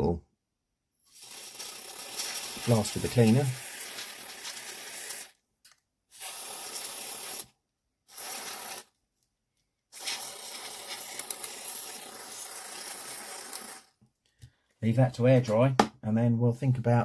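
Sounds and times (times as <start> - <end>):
aerosol spray hissing: 1.1 - 5.3, 6.2 - 7.5, 8.1 - 8.8, 10.0 - 13.9.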